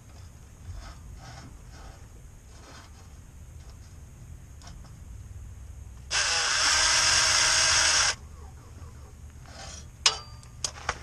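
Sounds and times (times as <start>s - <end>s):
power drill spinning: 6.1s - 8.2s.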